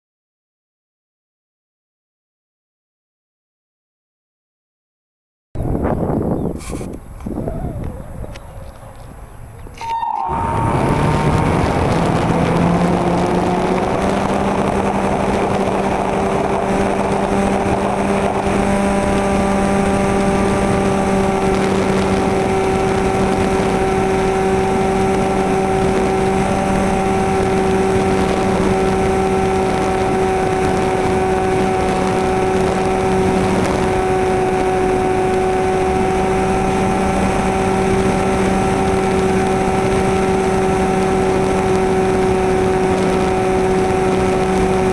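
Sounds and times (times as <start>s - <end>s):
airflow noise: 5.7s - 37.5s
model plane motor whine: 6.4s - 44.9s.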